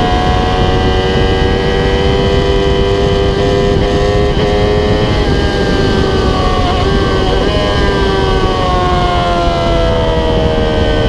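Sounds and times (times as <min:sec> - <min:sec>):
motorcycle engine at high revs: 0:00.0 - 0:11.0
wind rush: 0:00.0 - 0:11.0.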